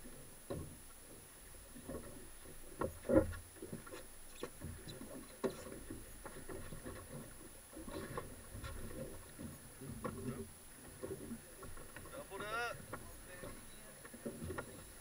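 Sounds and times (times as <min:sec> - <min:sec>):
waves lapping at hull: 0:00.0 - 0:15.0.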